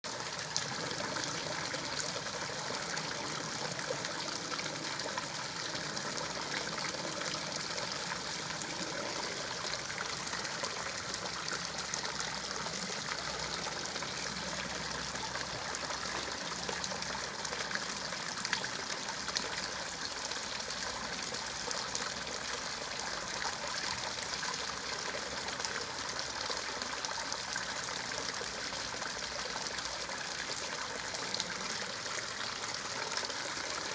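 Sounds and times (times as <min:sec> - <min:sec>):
water trickling: 0:00.1 - 0:33.9.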